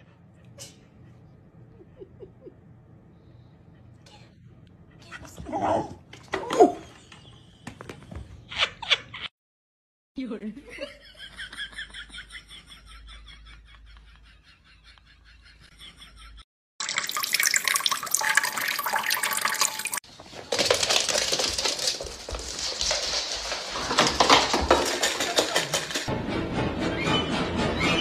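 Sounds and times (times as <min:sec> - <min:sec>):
water running from faucet: 0:16.8 - 0:20.0.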